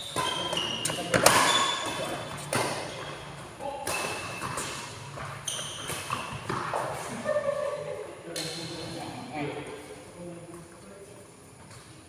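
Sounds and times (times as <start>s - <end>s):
rackets striking shuttlecock: 0.0s - 3.1s, 3.7s - 7.0s
shoes squeaking on court: 0.0s - 7.2s.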